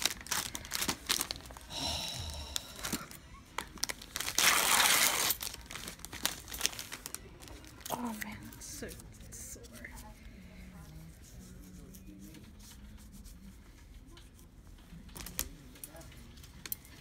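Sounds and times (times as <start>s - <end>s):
plastic and paper wrapping crinkling: 0.0s - 1.7s, 2.6s - 10.0s, 14.8s - 17.0s
wrapping tearing and peeling: 0.0s - 1.7s, 2.6s - 8.2s.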